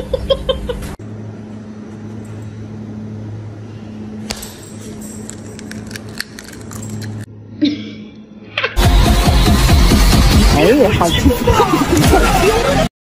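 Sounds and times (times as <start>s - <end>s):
low electrical hum: 0.0s - 8.7s.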